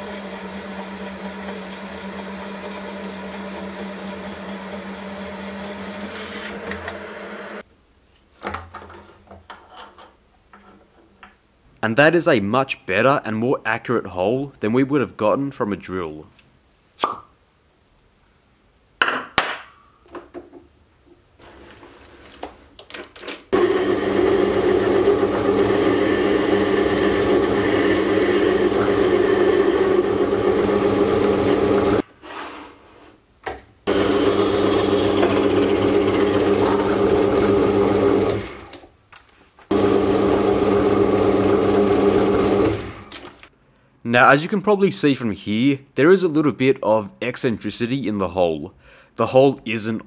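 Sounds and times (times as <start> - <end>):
metal lathe motor hum: 0.0 - 7.6, 23.6 - 32.0, 33.9 - 38.7, 39.7 - 43.0
lathe tool cutting metal: 23.6 - 32.0, 33.9 - 38.6.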